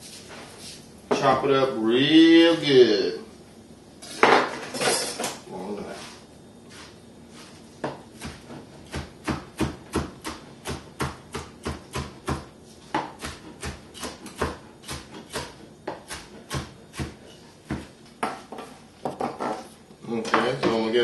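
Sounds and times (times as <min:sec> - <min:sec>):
knife chopping on board: 0:07.8 - 0:19.5.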